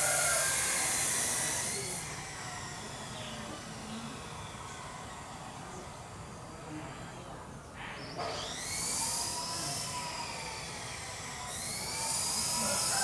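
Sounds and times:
shrill insect buzzing: 11.5 - 13.0.

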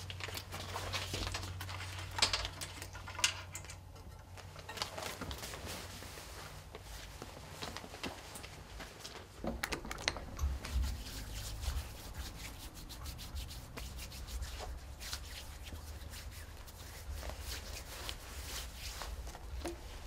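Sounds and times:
hands rubbing together: 10.6 - 19.5.

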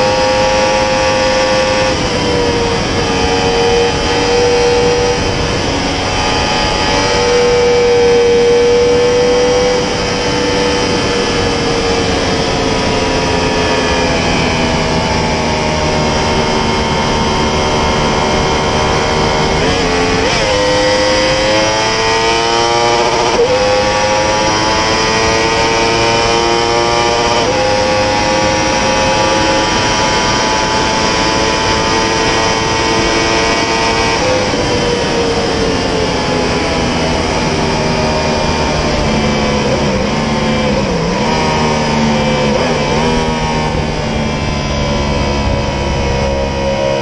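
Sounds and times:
motorcycle engine at high speed: 0.0 - 47.0
wind rush: 0.0 - 47.0.

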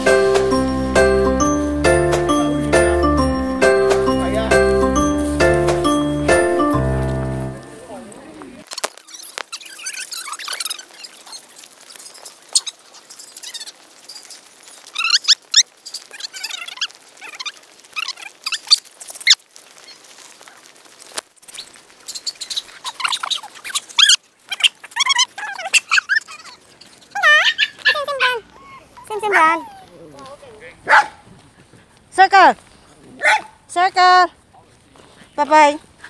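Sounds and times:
animal squeaks and chirps: 9.0 - 18.8, 21.6 - 29.8.

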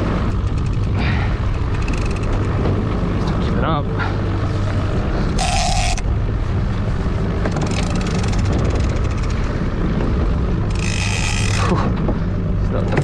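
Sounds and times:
outboard motor running: 0.0 - 13.0
fishing reel clicking: 1.7 - 2.5, 5.4 - 6.1, 7.6 - 9.5, 10.7 - 11.8.

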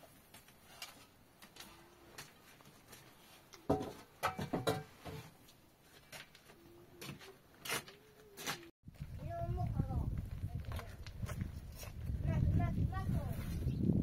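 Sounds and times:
knocks and clatter: 3.7 - 5.2.

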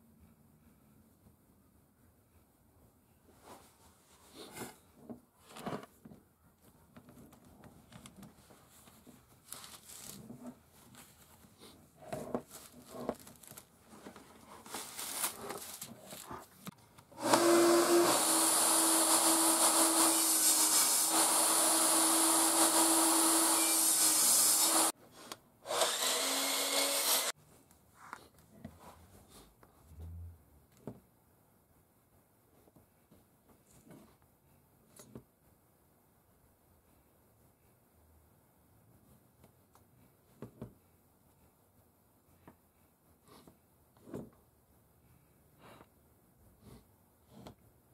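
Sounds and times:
electric power tool running: 17.2 - 24.9, 25.7 - 27.3.

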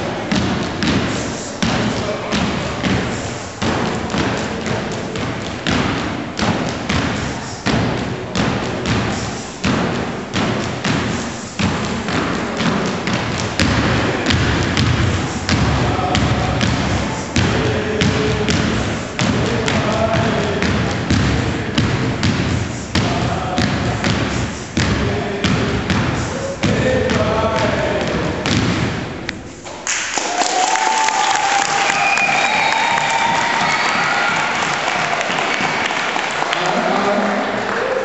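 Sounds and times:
hand claps: 29.7 - 37.9.

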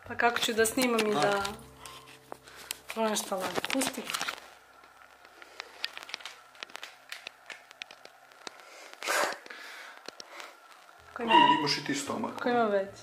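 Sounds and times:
paper sachet being handled: 0.4 - 8.6.

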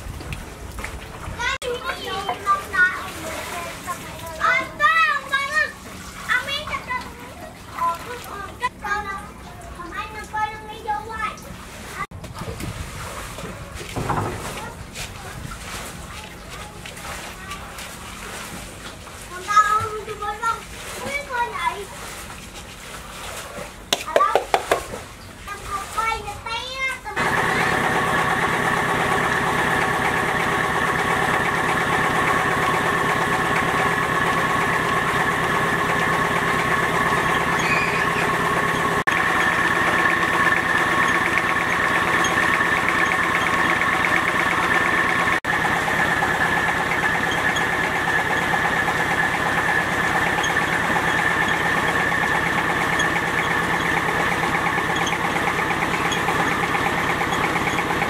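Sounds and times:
small engine running steadily: 27.2 - 58.0.

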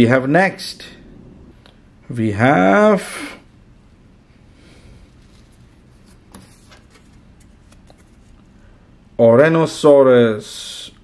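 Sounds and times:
light plastic rustling: 5.0 - 8.6.

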